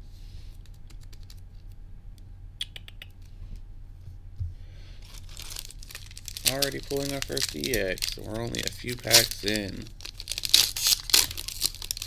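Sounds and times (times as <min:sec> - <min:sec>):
foil pack crinkling: 0:05.0 - 0:12.0.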